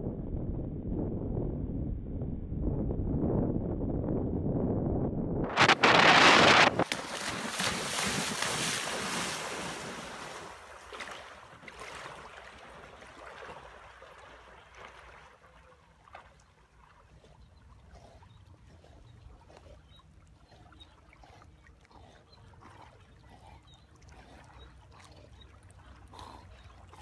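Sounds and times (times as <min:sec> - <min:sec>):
wind on microphone: 0:00.0 - 0:10.3
breaking surf: 0:05.5 - 0:10.5.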